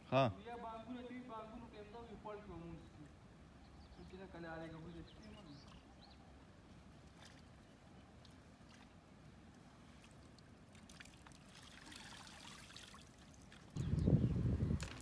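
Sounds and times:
faint water trickle: 2.8s - 14.1s.

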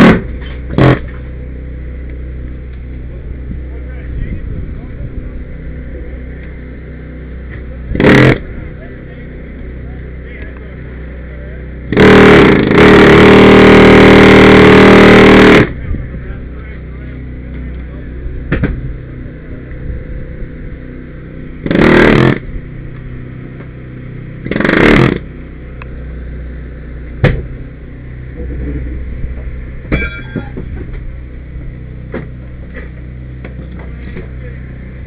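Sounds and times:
loud bursts of noise: 0.0s - 1.2s, 3.5s - 9.4s, 11.7s - 16.6s, 18.1s - 32.5s
small engine running: 0.0s - 35.0s
brief metallic ring: 30.0s - 30.6s.

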